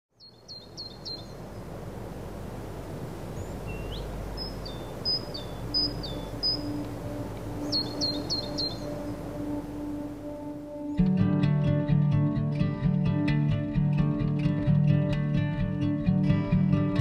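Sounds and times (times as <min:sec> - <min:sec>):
small songbird chirping: 0:00.1 - 0:01.8, 0:03.2 - 0:11.1
steady outdoor hiss: 0:00.2 - 0:17.0
low held musical note: 0:05.6 - 0:13.0.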